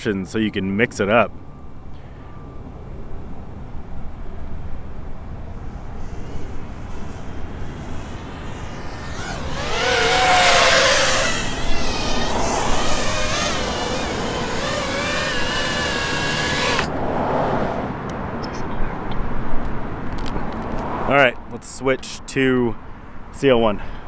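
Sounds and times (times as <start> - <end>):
quadcopter motors whining: 4.4 - 17.0.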